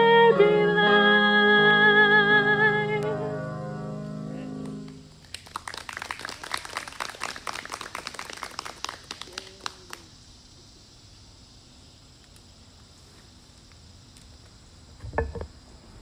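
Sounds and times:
song last note: 0.0 - 5.1
people clapping: 4.6 - 10.1.

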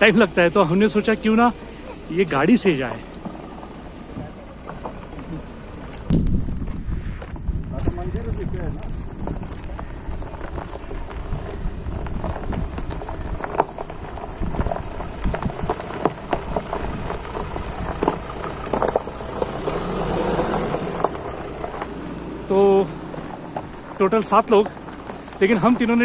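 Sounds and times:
tyres crunching gravel: 0.0 - 26.0
stones clicking and cracking: 7.8 - 26.0.

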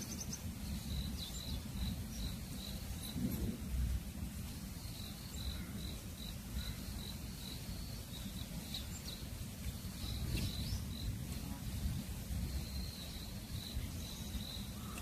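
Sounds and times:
insect chirping steadily: 0.0 - 15.0
low outdoor rumble: 0.0 - 15.0.

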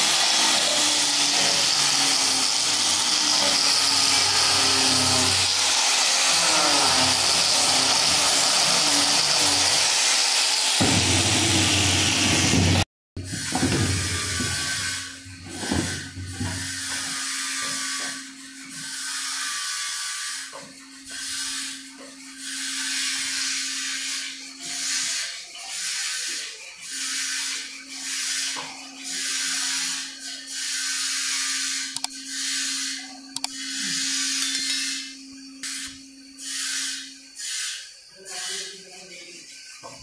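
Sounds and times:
sandpaper rasping on wood: 0.0 - 12.3, 16.9 - 33.0, 36.4 - 39.8
loud power tool: 0.0 - 37.8.

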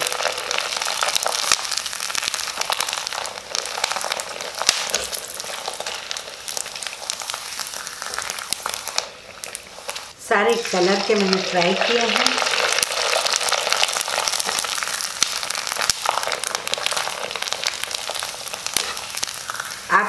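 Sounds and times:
food sizzling in hot oil: 0.0 - 20.0.

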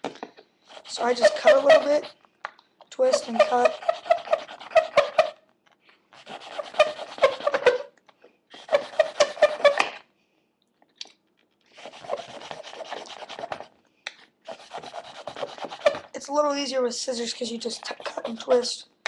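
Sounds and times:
knife cutting plastic tube: 3.0 - 5.4, 6.2 - 7.9, 8.5 - 10.0, 11.7 - 13.7, 14.5 - 16.1.

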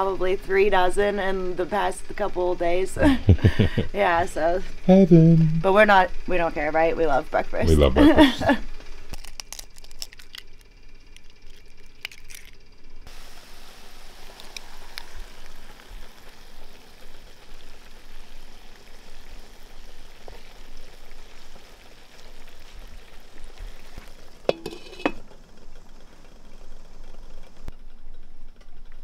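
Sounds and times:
eggs and potatoes sizzling: 9.0 - 27.7
glass lid clinking on pan: 24.5 - 25.2.

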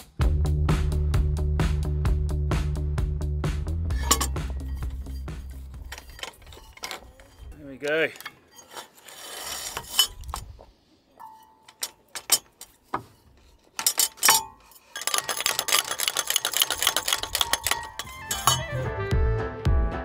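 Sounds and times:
music: 0.0 - 6.0, 18.0 - 20.0
metallic clinks of rigging hardware: 3.9 - 8.8, 13.5 - 18.9.

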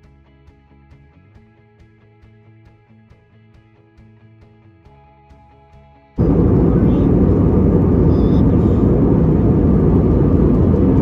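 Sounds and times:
jet airliner rumble: 6.2 - 11.0.

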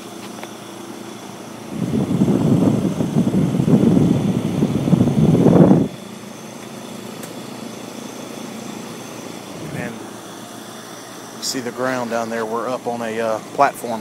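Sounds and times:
heat pumps humming: 0.0 - 14.0
rough rush of air on microphone: 1.6 - 6.0.

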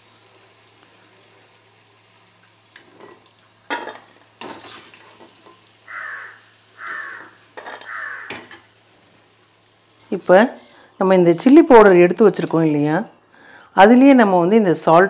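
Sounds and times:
metal spoon scraping a pan: 2.8 - 5.7, 6.8 - 8.8.

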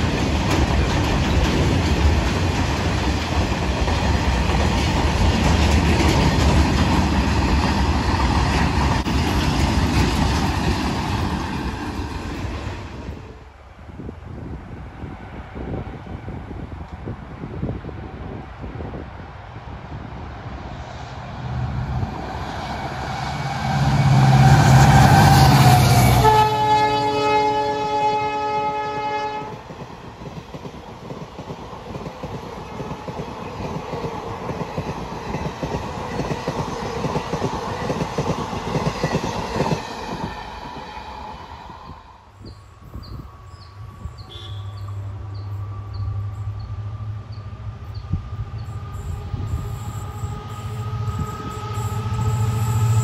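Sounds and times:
wheels clattering over rail joints: 0.0 - 12.6
diesel locomotive engine rumble: 0.0 - 53.0
distant diesel locomotive rumble: 0.0 - 53.0
multi-tone train horn: 22.8 - 29.7, 44.2 - 47.1, 48.1 - 53.0.

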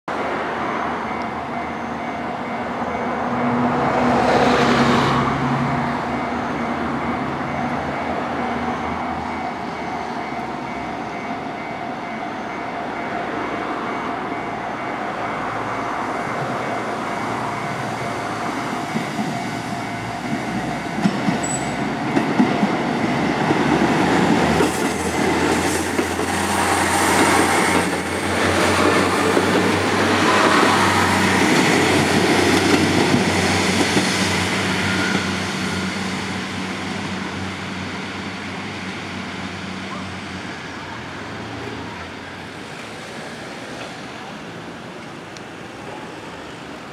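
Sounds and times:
diesel railcar engines droning: 0.1 - 46.9
train wheels clacking on rail joints: 17.8 - 35.4.

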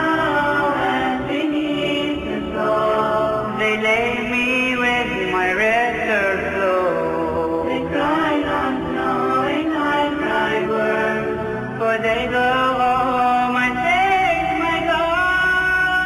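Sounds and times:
voices singing in harmony: 0.0 - 16.0.

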